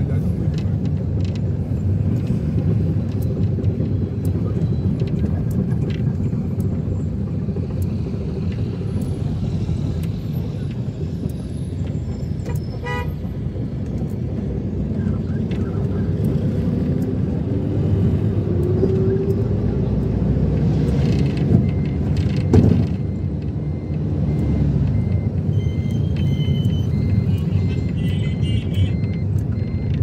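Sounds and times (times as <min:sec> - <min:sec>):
vehicle rumbling: 0:00.0 - 0:30.0
short high beeps: 0:24.4 - 0:30.0.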